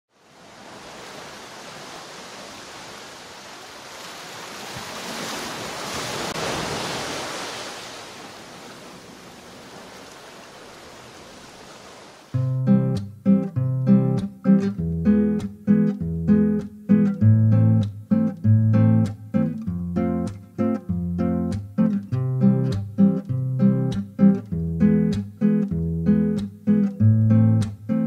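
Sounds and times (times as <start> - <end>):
waves washing onto beach: 0.1 - 12.4
acoustic guitar strumming: 12.4 - 28.0.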